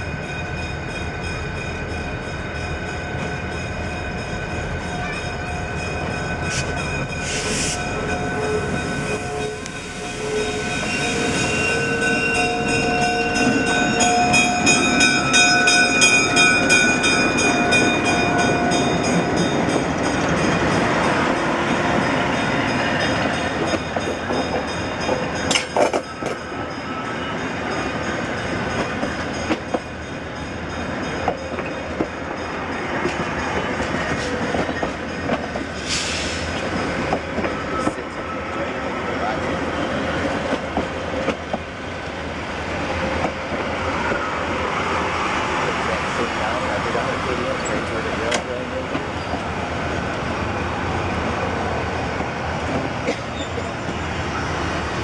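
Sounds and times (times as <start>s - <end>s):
diesel locomotive engines: 0.0s - 55.0s
locomotive horn tones: 6.6s - 13.6s
train wheels clicking over rail joints: 23.1s - 26.5s, 33.0s - 38.2s, 40.2s - 41.7s, 47.4s - 49.5s.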